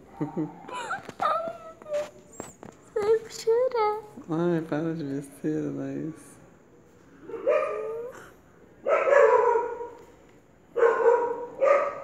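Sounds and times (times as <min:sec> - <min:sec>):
dog barking: 0:07.2 - 0:08.1, 0:08.8 - 0:10.0, 0:10.7 - 0:12.0.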